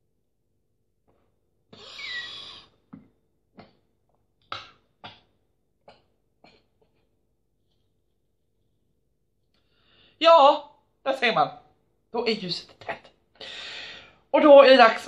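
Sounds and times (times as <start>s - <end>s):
person breathing hard: 1.7s - 2.8s, 9.6s - 10.2s, 13.4s - 14.3s.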